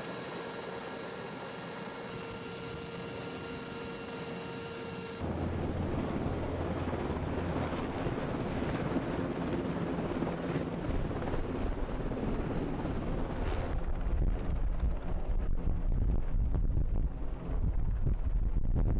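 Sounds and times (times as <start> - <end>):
helicopter rotor and engine drone: 0.0 - 15.9
wind on microphone: 13.2 - 18.9.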